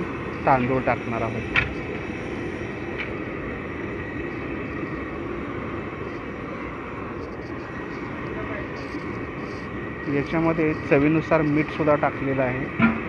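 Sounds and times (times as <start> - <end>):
gas burner roaring: 0.0 - 13.0.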